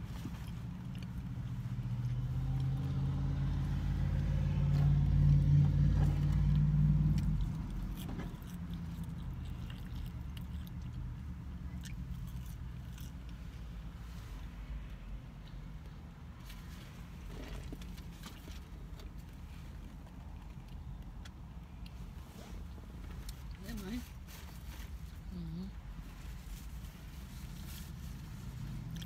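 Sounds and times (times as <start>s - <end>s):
vehicle engine rumble: 0.0s - 29.0s
mouth sounds of eating: 7.1s - 13.4s, 25.2s - 25.8s.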